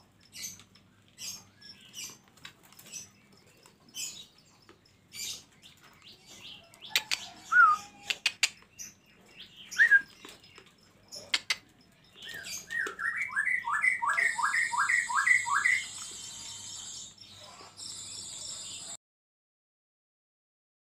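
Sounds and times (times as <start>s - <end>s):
songbird calling: 2.8s - 19.0s.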